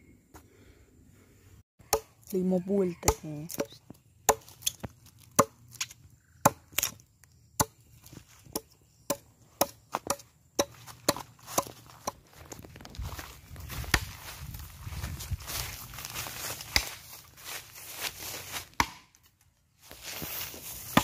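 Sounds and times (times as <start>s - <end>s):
axe chopping wood: 1.8s - 2.3s, 3.0s - 7.0s, 7.6s - 7.8s, 8.5s - 12.2s, 18.8s - 19.2s.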